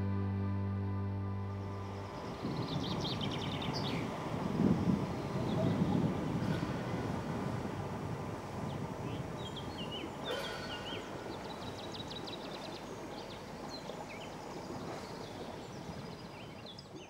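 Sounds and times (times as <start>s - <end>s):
low rumble: 0.0s - 10.0s
small birds singing: 1.7s - 6.6s, 8.4s - 17.0s.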